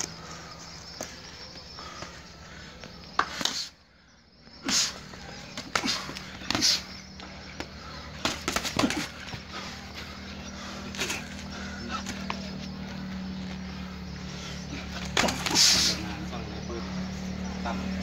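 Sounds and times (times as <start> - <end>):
punches and kicks slapping: 4.7 - 9.9, 14.8 - 16.2.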